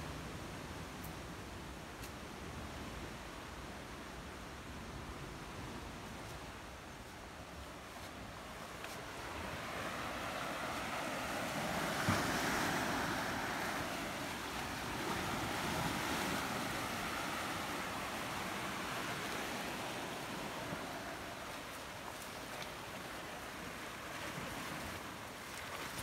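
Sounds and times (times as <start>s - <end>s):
waves breaking among boulders: 8.0s - 26.0s.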